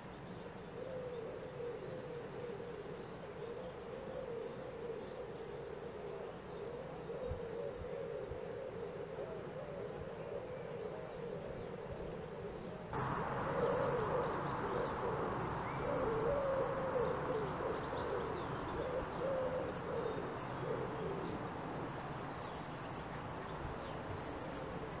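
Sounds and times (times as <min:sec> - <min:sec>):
dove cooing: 0:00.7 - 0:22.5
small birds chirping: 0:13.0 - 0:24.4
steady hiss: 0:13.0 - 0:25.0.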